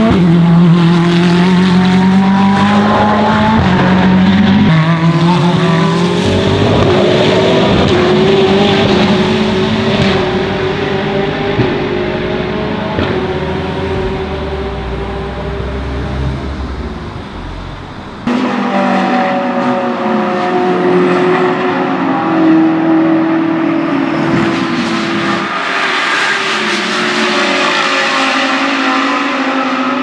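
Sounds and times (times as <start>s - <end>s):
race car engine revving: 0.0s - 30.0s
race car engines at full throttle: 0.0s - 30.0s.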